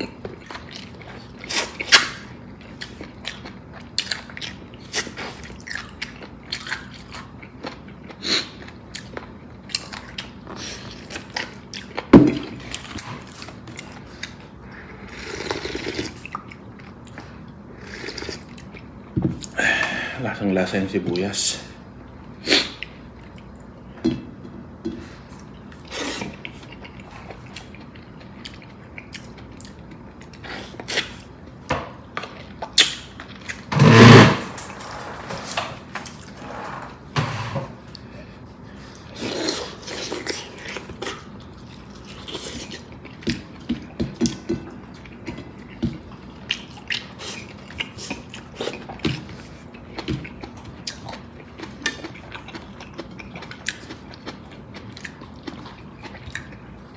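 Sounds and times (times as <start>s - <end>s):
slurping and chewing: 0.0s - 19.6s, 25.0s - 31.6s, 37.7s - 56.9s.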